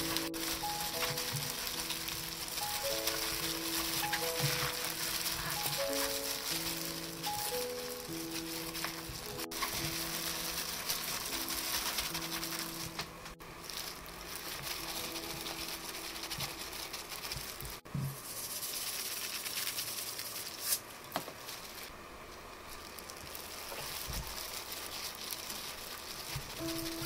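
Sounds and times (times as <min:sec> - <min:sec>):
soft background music: 0:00.0 - 0:17.9, 0:25.3 - 0:27.0
wet rustling and squelching: 0:00.0 - 0:27.0.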